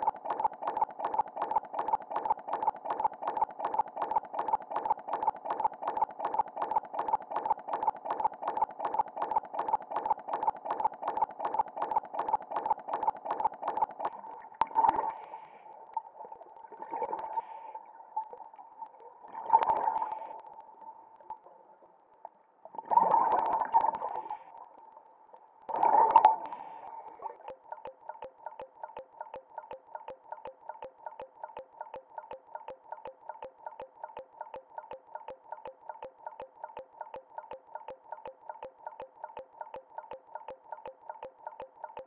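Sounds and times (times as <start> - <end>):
rapid steady pulsing: 0.0 - 14.2
faint steady tone: 0.0 - 22.7.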